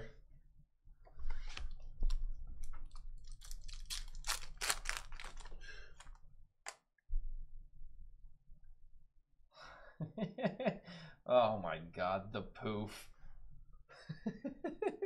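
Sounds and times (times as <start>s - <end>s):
foil wrapper crinkling and tearing: 2.9s - 6.2s.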